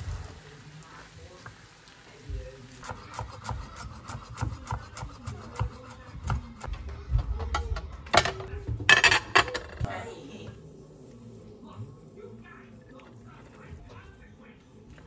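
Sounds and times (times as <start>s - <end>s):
knife chopping on wooden board: 2.8s - 6.7s.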